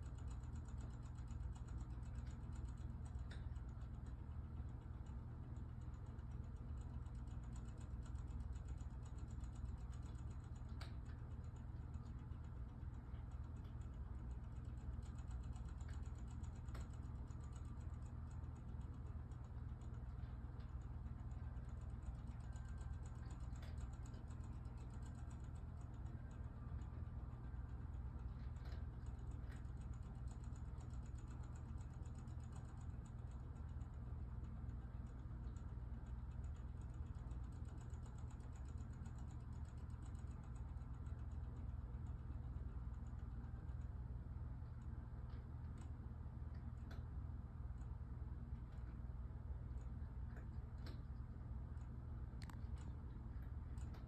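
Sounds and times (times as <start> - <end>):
fast faint clock ticks: 0.0 - 54.0
steady low hum: 0.0 - 54.0.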